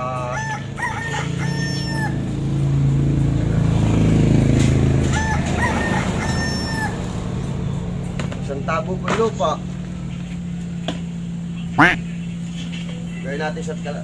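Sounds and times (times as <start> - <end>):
rooster crowing: 0.1 - 2.4, 5.1 - 7.2.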